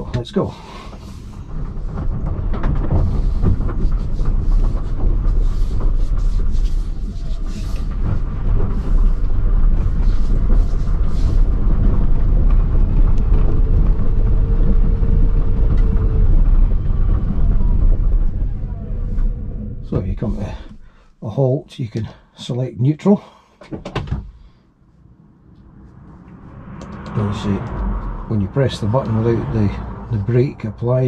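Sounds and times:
road and tyre rumble: 0:00.0 - 0:21.0, 0:24.2 - 0:31.0
faint whine: 0:24.7 - 0:31.0.

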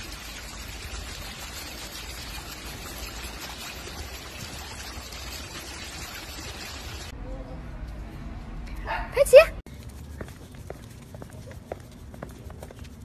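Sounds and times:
water trickling: 0:00.0 - 0:07.1.

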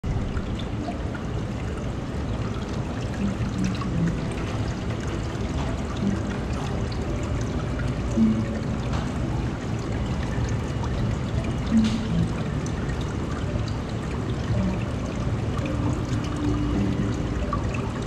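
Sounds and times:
water pouring and splashing in tank: 0:00.0 - 0:18.0.

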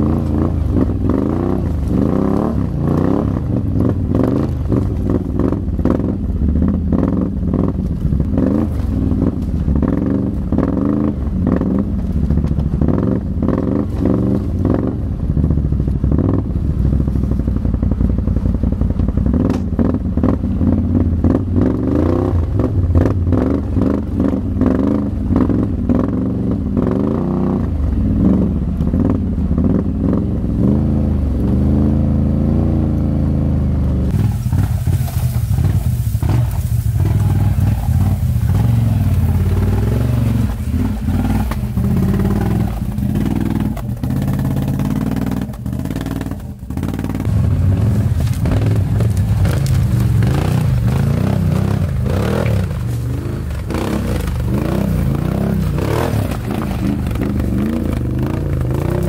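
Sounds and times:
quad engine revving: 0:00.0 - 0:12.1, 0:12.7 - 0:17.1, 0:18.8 - 0:59.0
branches scraping against vehicle: 0:07.7 - 0:14.8, 0:34.1 - 0:59.0.

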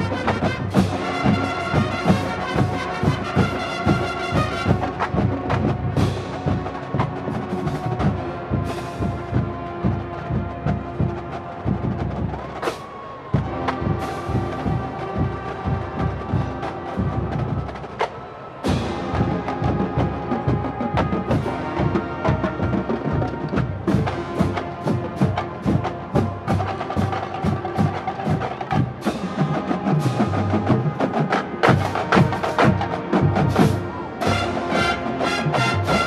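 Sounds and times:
marching band drums and mallets: 0:00.0 - 0:36.0.

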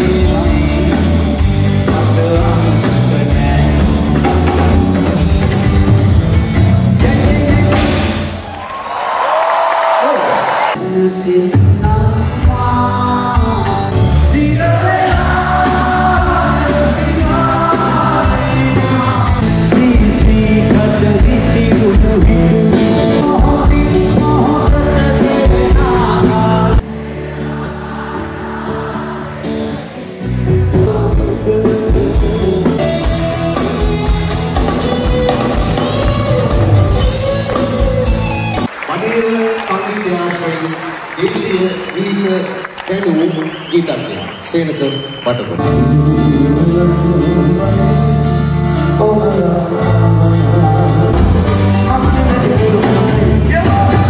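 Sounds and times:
man singing: 0:00.0 - 0:04.8, 0:06.9 - 0:08.3, 0:10.8 - 0:26.8, 0:29.8 - 0:33.8, 0:44.8 - 0:54.0
live band playing: 0:00.0 - 0:08.8, 0:10.5 - 0:54.0.

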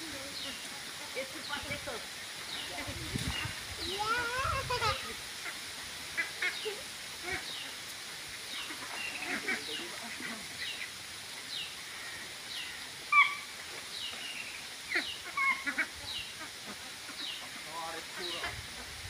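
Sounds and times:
ducks peeping: 0:00.0 - 0:19.0
louder duck calls: 0:04.5 - 0:07.6, 0:08.6 - 0:10.5, 0:14.9 - 0:18.9.

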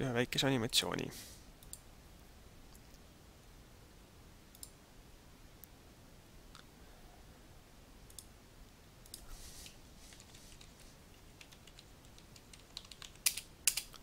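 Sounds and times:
keyboard and mouse clicking: 0:10.1 - 0:14.0.

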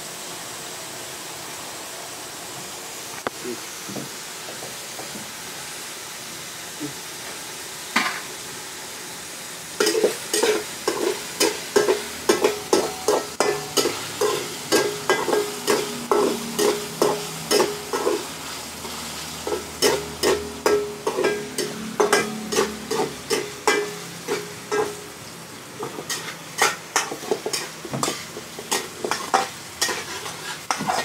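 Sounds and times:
frying hiss: 0:00.0 - 0:31.0
metal spatula scraping wok: 0:09.8 - 0:25.1, 0:25.8 - 0:31.0.

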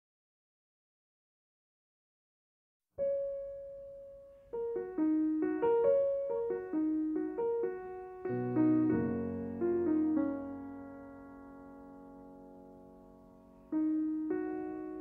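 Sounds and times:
piano melody: 0:03.0 - 0:15.0.

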